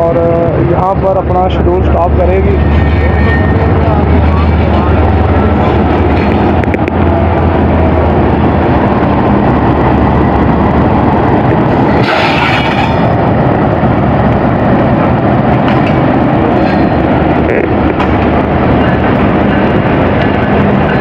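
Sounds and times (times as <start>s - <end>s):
diesel locomotive engine: 0.0s - 21.0s
train wheel and rail noise: 0.0s - 21.0s.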